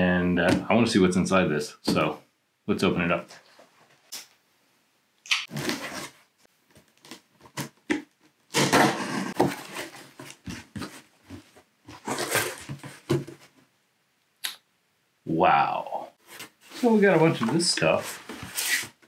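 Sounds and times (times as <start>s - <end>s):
packing tape ripping: 8.5s - 9.3s
cardboard scrapes and clicks: 11.9s - 13.2s, 18.0s - 19.0s.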